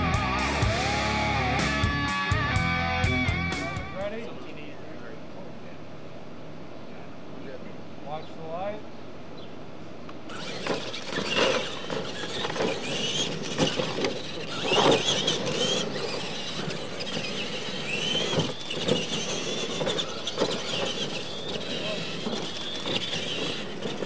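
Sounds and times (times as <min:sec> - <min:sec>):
rc truck motor whine: 0:10.2 - 0:24.0
trucks landing knocks: 0:10.3 - 0:24.0.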